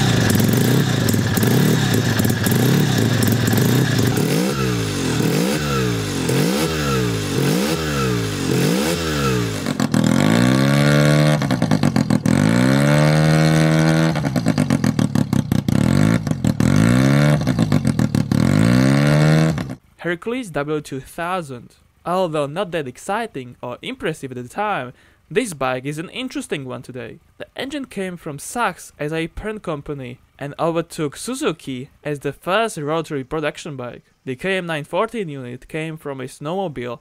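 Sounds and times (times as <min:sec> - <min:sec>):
exhaust crackles: 0:00.0 - 0:19.8
rotary engine revving: 0:00.0 - 0:19.8.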